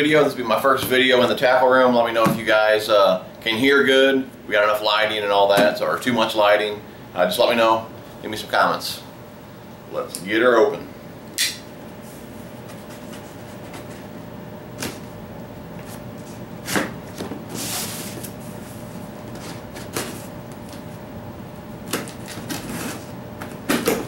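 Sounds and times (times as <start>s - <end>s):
blade scraping packing tape: 21.9s - 23.1s.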